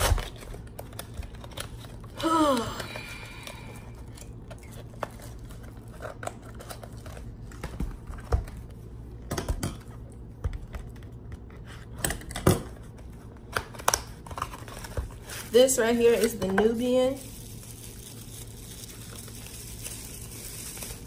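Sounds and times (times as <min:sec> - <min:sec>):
packaging rustling: 0:12.9 - 0:21.0.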